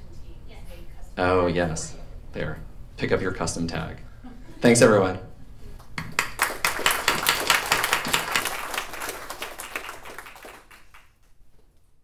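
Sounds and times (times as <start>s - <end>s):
audience applauding: 6.0s - 11.3s.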